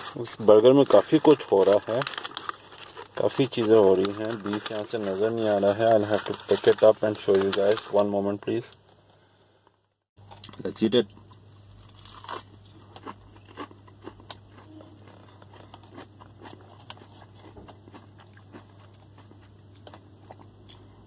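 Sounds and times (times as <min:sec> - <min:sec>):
person biting and chewing: 0:11.7 - 0:20.9.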